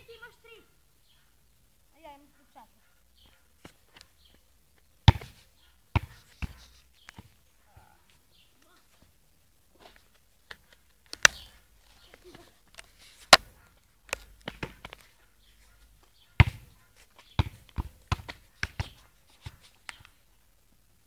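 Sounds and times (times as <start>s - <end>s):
football thumps: 5.0s - 7.4s, 14.4s - 15.0s, 16.4s - 19.7s.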